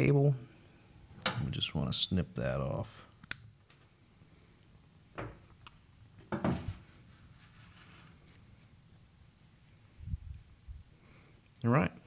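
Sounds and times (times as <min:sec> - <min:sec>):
cable rustling: 0:05.6 - 0:08.8.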